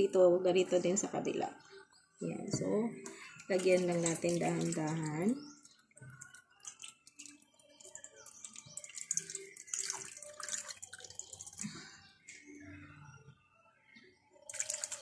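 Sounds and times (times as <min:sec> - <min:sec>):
liquid splashing into metal tray: 0:03.1 - 0:05.4, 0:06.0 - 0:11.9, 0:14.5 - 0:15.0.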